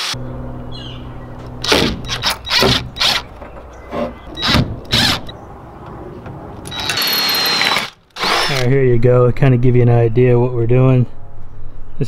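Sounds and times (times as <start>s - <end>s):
cordless drill drilling into metal: 4.4s - 5.3s, 6.7s - 8.7s.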